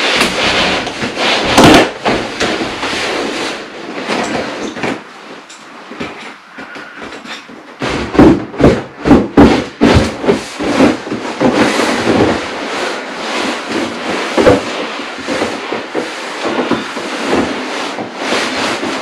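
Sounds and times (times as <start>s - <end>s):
loud thumps: 5.9s - 19.0s
air escaping from vinyl: 9.5s - 19.0s.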